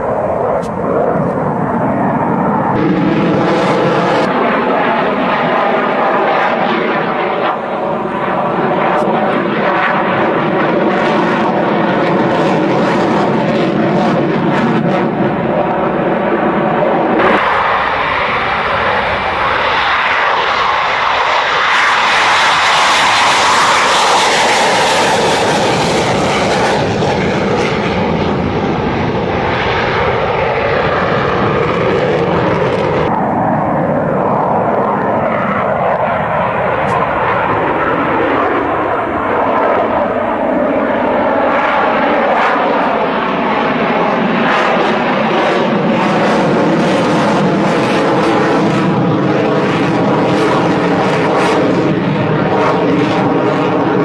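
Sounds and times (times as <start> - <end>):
fighter jet engines roaring: 0.0 - 54.0.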